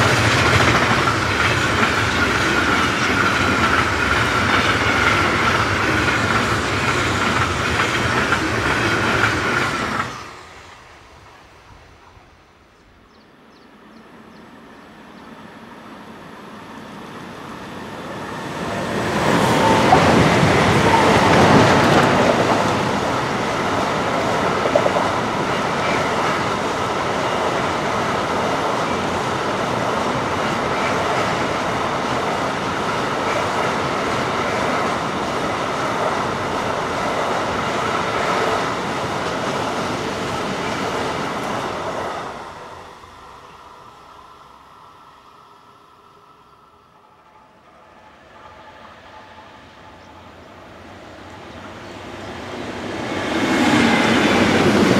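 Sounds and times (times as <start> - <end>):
electric locomotive passing: 0.0 - 54.9
wheels clattering on rail: 19.0 - 26.9.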